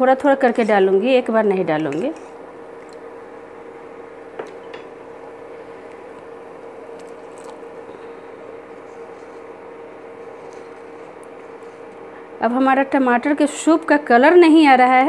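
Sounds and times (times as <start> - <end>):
cooktop hum: 0.0 - 15.0.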